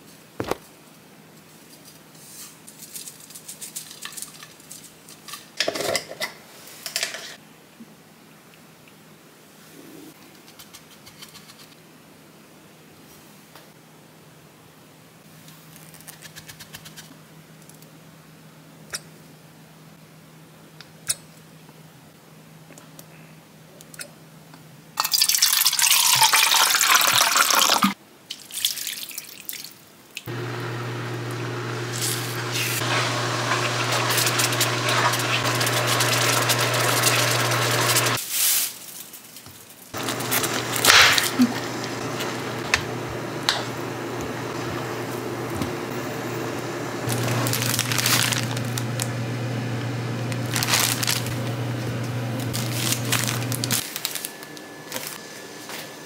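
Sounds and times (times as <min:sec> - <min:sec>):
liquid poured into frying pan: 0:25.0 - 0:27.9
spoon stirring: 0:32.0 - 0:38.2.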